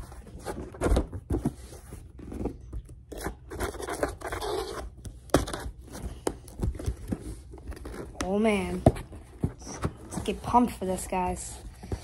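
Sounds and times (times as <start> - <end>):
scissors cutting cardboard: 3.1 - 10.4.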